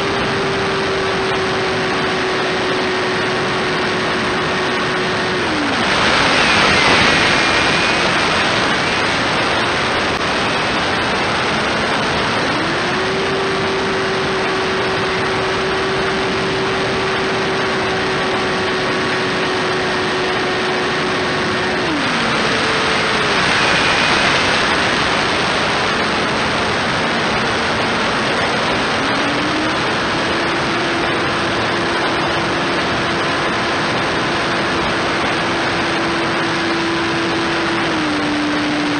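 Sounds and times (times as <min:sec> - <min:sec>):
electric motor and propeller hum: 0:00.0 - 0:38.9
rushing wind: 0:00.0 - 0:38.9.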